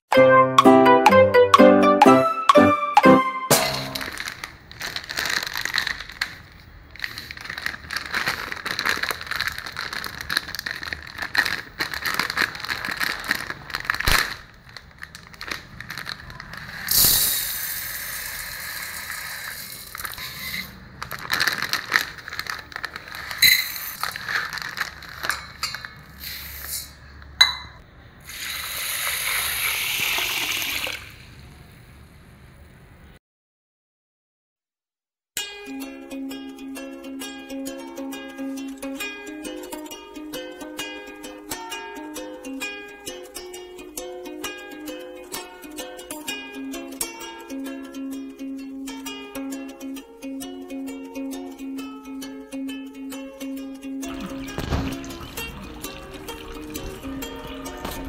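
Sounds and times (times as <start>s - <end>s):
metal cup clinking: 25.2s - 26.1s, 27.4s - 27.8s
water rushing into bowl: 28.3s - 31.4s, 54.1s - 57.9s.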